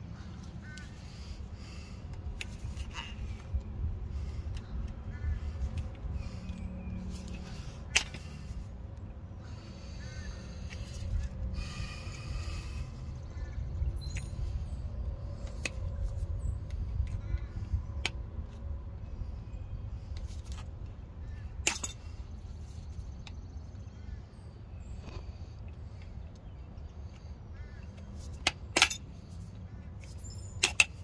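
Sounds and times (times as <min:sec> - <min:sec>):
pliers clicking and scraping on metal: 0:21.6 - 0:22.0, 0:27.9 - 0:29.1, 0:30.0 - 0:31.0.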